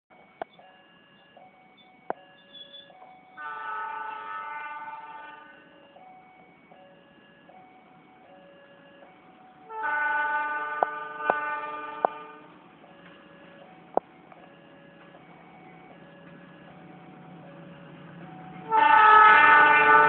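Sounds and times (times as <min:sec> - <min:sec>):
level-crossing warning alarm: 0:00.1 - 0:20.0
locomotive horn blasts: 0:03.4 - 0:05.7, 0:09.7 - 0:12.6, 0:18.7 - 0:20.0.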